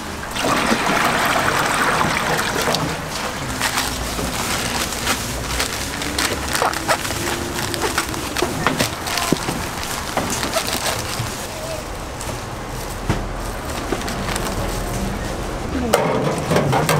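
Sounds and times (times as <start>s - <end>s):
water splashing into metal tray: 0.3s - 3.2s
plastic crinkling: 2.0s - 15.5s
scissors snipping plastic packets: 3.5s - 11.4s.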